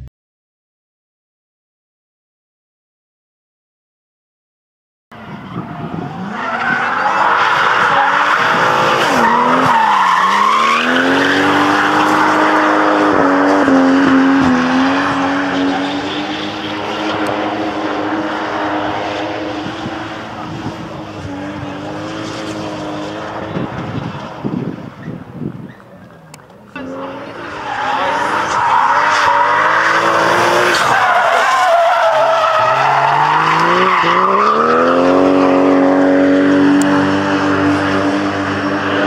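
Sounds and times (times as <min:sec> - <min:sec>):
car engine at high revs: 0:05.2 - 0:39.0
tyres squealing: 0:27.4 - 0:34.7.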